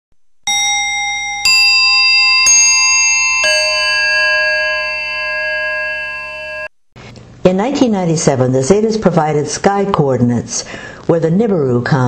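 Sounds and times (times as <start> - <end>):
bell-like chime notes: 0.5 - 6.7.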